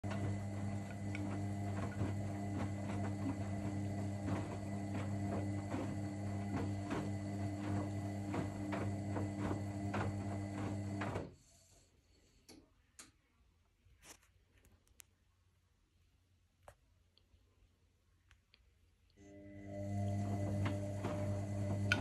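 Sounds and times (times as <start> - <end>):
laundry swishing and knocking in drum: 0.0 - 11.3
washing machine motor hum: 0.0 - 11.4, 19.2 - 22.0.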